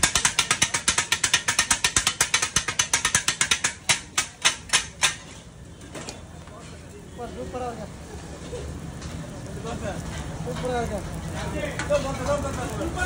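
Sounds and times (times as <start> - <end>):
steel blades chopping on griddle: 0.0 - 5.5.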